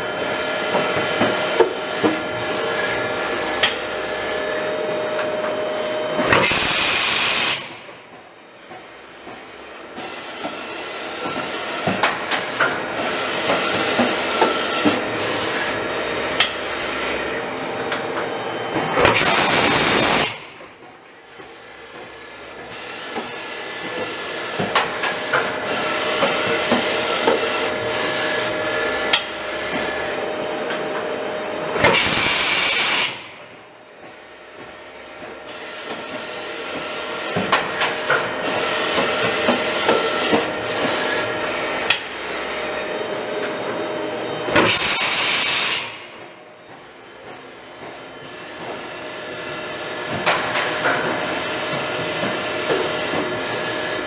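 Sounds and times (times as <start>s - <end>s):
machining center whining: 33.1s - 44.7s.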